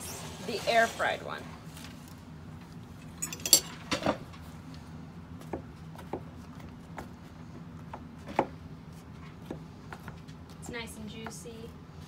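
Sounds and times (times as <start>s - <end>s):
fork clinking against dish: 3.2s - 3.8s.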